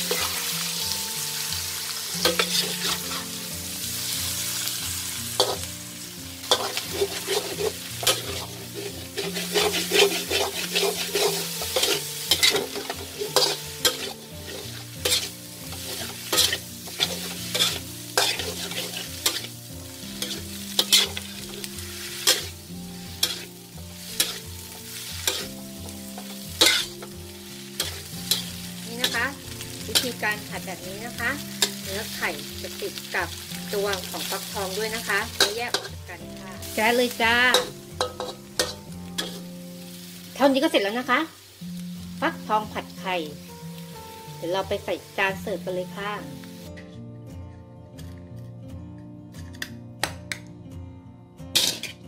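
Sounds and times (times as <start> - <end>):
metal spatula scraping a wok: 0.0 - 1.0, 2.1 - 3.8, 4.7 - 40.0, 51.5 - 52.0
frying sizzle: 0.0 - 46.7, 51.5 - 52.0.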